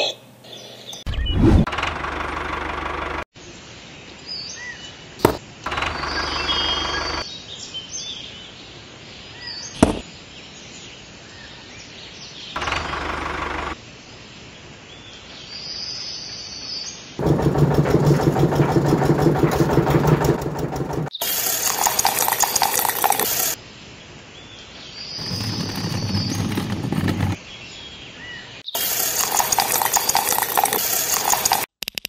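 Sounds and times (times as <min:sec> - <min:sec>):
birds chirping: 0:04.4 - 0:08.5, 0:24.4 - 0:31.6.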